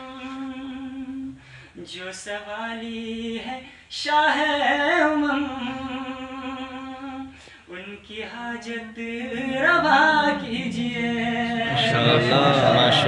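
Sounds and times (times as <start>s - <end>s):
man singing unaccompanied: 1.8s - 13.0s
group of voices singing: 8.4s - 13.0s.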